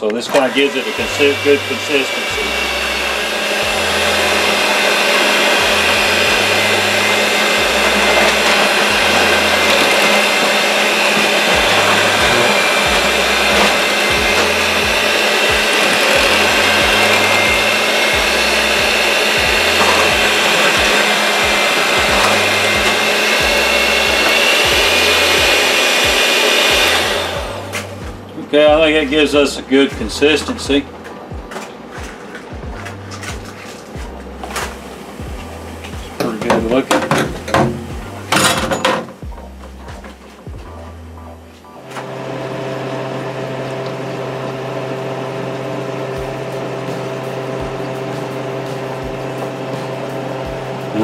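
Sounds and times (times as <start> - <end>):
electric mixer motor whine: 0.0 - 31.0, 41.9 - 51.0.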